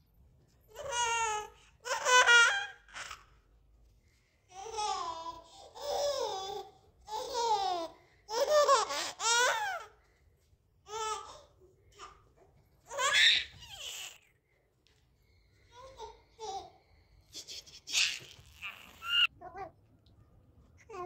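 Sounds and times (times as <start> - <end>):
baby laughing and babbling: 0.7 - 3.4, 4.5 - 10.0, 10.9 - 14.3, 15.7 - 19.7.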